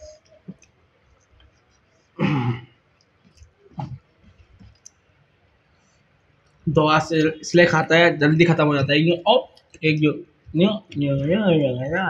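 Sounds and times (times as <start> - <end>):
person clearing throat: 2.2 - 2.8.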